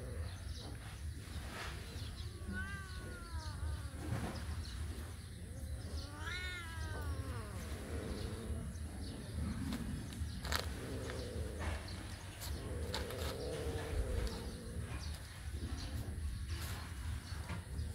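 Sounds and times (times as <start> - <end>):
cat meowing: 2.1 - 4.6, 5.5 - 8.7.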